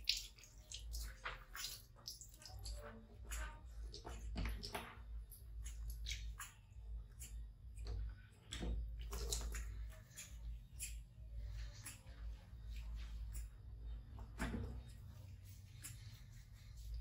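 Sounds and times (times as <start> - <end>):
wet squishing and rubbing: 0.0 - 17.0.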